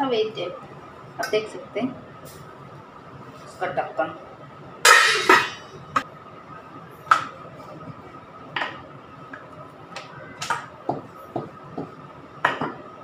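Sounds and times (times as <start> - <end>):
faint steady hum: 0.0 - 13.0
steel pots and lid clinking: 4.9 - 5.7.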